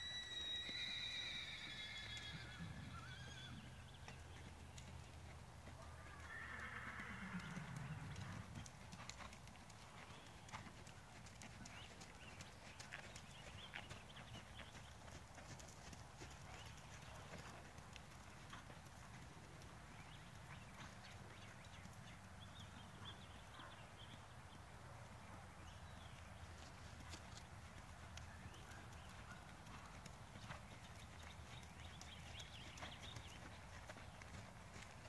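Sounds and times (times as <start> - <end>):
horse hoofbeats on sand: 28.4 - 35.0.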